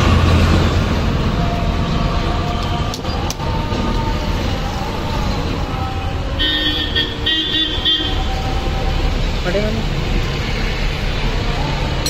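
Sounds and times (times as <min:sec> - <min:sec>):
road traffic rumble: 0:00.0 - 0:12.0
vehicle horn toots: 0:06.4 - 0:08.3.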